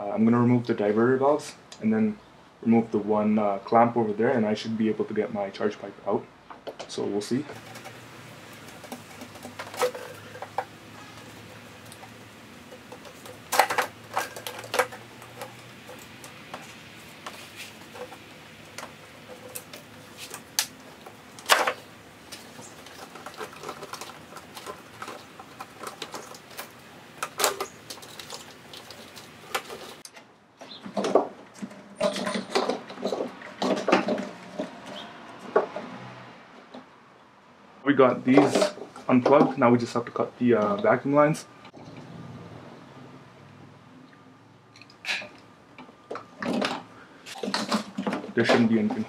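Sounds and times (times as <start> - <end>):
plastic parts clicking: 7.5 - 16.6, 17.2 - 30.2.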